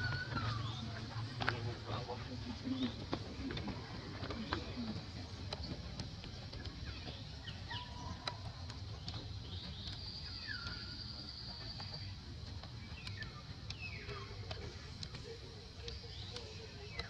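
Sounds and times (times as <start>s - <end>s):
bird trill: 0.0s - 1.2s, 9.1s - 12.1s.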